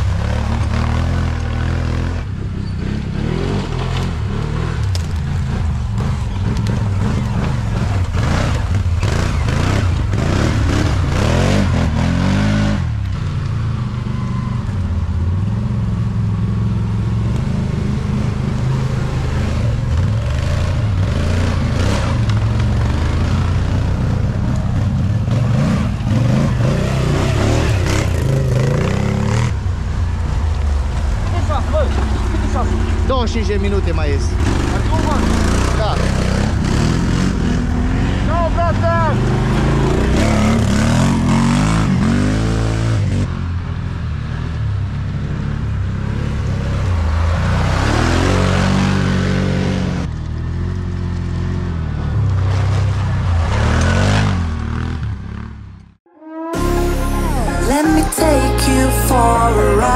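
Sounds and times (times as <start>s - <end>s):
atv engine revving: 0.0s - 55.9s.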